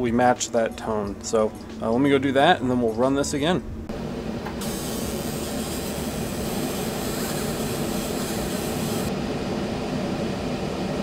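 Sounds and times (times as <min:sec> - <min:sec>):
fume extractor air rush: 0:03.9 - 0:11.0.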